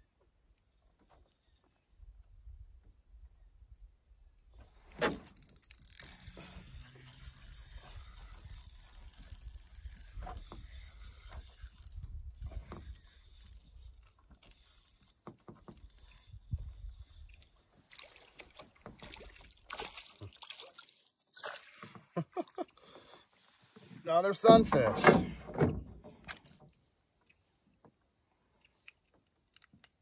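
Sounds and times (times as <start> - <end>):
fishing reel ratcheting clicks: 5.1 - 16.5.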